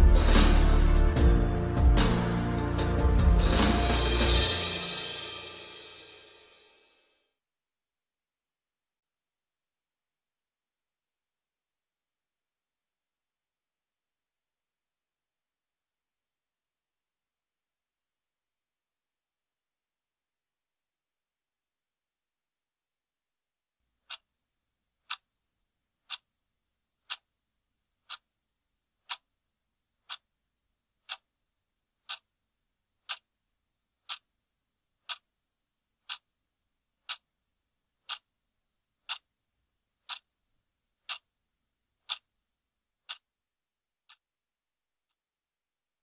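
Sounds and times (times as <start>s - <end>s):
clock ticking: 24.0s - 24.3s, 26.1s - 26.3s, 27.1s - 27.3s, 28.0s - 28.3s, 29.0s - 29.3s, 30.0s - 30.2s, 31.0s - 31.3s, 32.0s - 32.3s, 33.0s - 33.3s, 34.0s - 34.3s, 35.0s - 35.3s, 36.0s - 36.3s, 37.0s - 37.3s, 38.0s - 38.3s, 39.0s - 39.3s, 40.0s - 40.3s, 41.0s - 41.3s, 42.0s - 42.3s, 43.0s - 43.3s.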